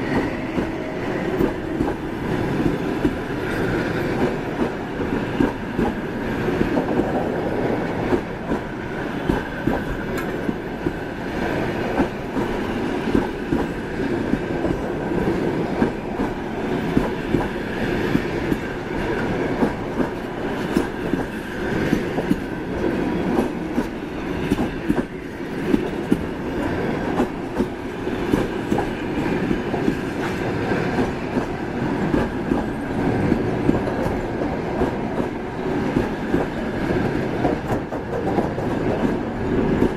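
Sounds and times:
train wheels rumbling: 0.0s - 39.9s.

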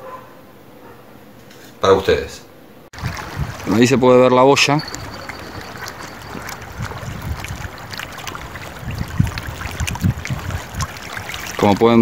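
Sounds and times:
small waves lapping: 3.0s - 12.0s
wind buffeting the microphone: 3.0s - 12.0s.

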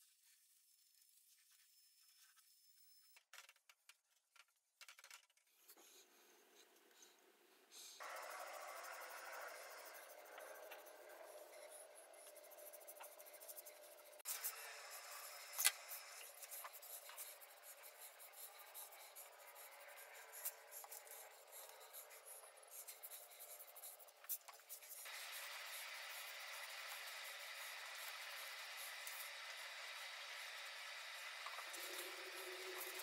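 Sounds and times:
foam brush rubbing on wood: 8.0s - 33.0s.

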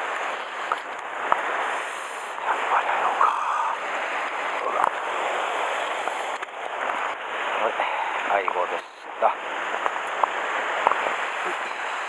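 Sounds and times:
surf washing over rocks: 0.0s - 12.0s.

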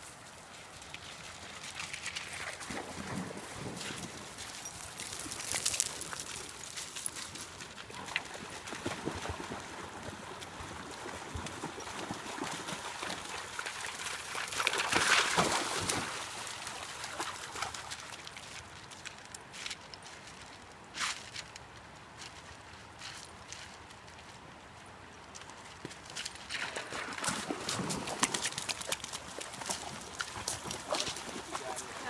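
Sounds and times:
splashing through shallow water: 0.4s - 19.2s, 25.9s - 32.0s
paws clattering over pebbles: 3.7s - 8.4s, 27.2s - 32.0s.

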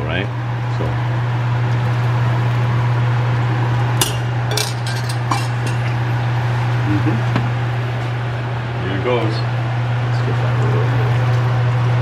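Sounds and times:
low hum: 2.2s - 8.7s
utensils clinking on metal pans: 4.0s - 6.1s.

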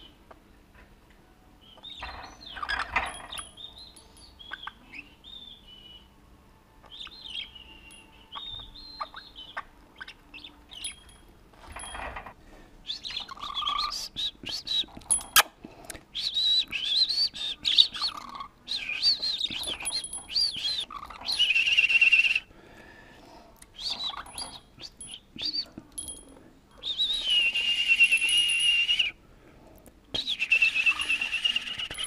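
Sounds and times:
budgerigar chirping and warbling: 1.7s - 5.9s, 6.9s - 11.0s, 13.0s - 14.1s, 17.6s - 21.5s, 23.8s - 25.7s.

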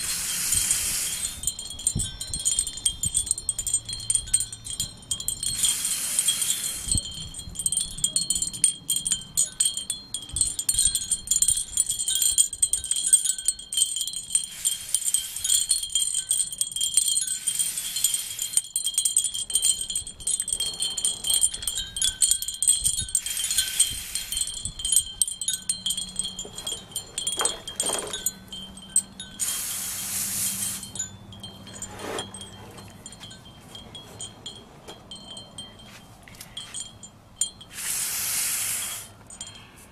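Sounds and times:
short bursts of hiss: 0.0s - 1.4s, 5.6s - 7.0s, 14.5s - 15.6s, 17.4s - 18.5s, 23.2s - 24.5s, 29.4s - 31.0s, 37.7s - 39.2s
wind chimes ringing: 0.0s - 37.8s, 38.8s - 39.9s.

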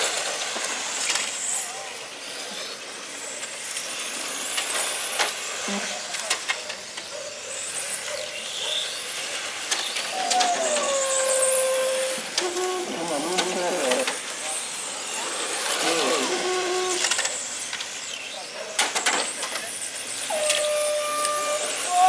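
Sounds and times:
rc car motor whine: 0.0s - 22.0s
low sliding tone: 10.2s - 14.1s, 15.8s - 17.3s.

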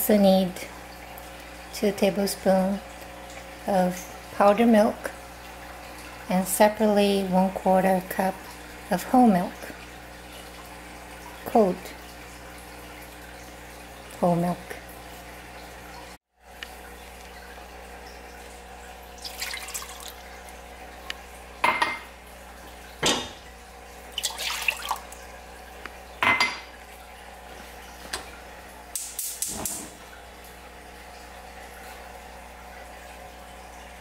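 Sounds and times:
milk splashing into a pot: 19.2s - 20.2s, 24.1s - 25.2s
cup clinking against pot: 26.2s - 26.7s.

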